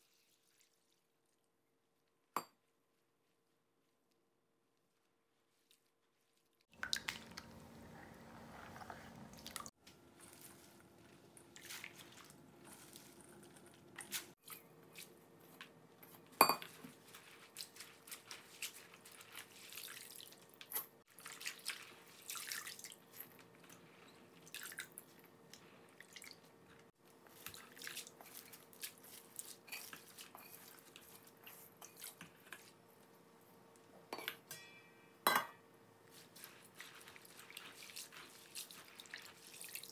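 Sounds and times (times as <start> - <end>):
water splashing and dripping: 6.7 - 7.5, 21.1 - 23.0.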